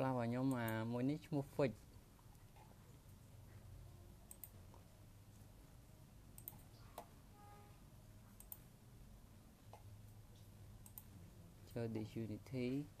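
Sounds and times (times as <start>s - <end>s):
computer clicks: 0.4s - 0.8s, 4.3s - 4.6s, 6.4s - 7.2s, 8.4s - 8.7s, 10.4s - 11.1s.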